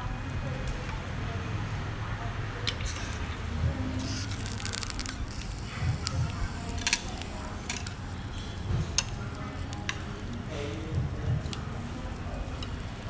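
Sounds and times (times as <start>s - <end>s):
light sizzle: 0.0s - 13.0s
low steady hum: 0.0s - 13.0s
chopsticks clicking on metal pan: 4.4s - 10.4s.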